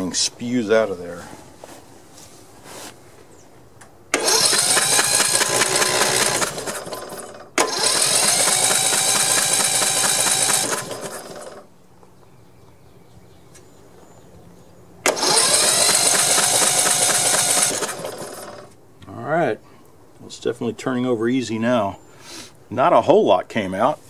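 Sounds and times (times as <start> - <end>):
engine cranking by starter: 4.1 - 11.7, 15.0 - 18.8.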